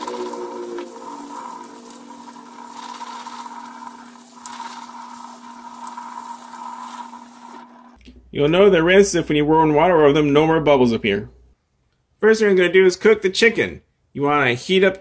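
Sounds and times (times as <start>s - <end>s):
faint whine: 0.0s - 4.7s
faucet water splashing into sink: 0.0s - 7.6s.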